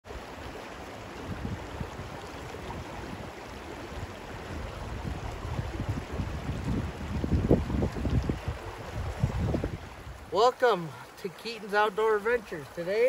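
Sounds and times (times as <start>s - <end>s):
wind buffeting microphone: 0.5s - 10.4s.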